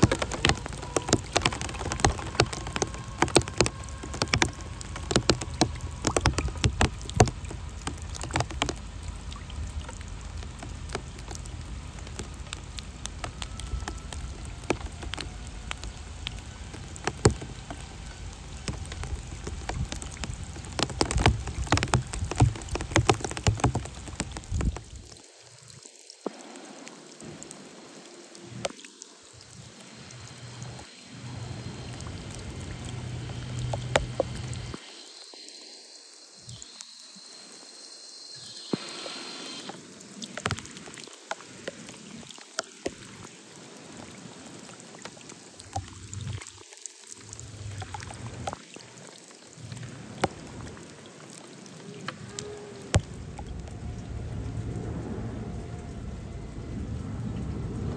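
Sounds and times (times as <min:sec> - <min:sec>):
rain falling into puddles: 0:00.0 - 0:37.0, 0:38.4 - 0:57.9
electric motor whine: 0:38.6 - 0:39.8
low rumble: 0:53.0 - 0:57.9.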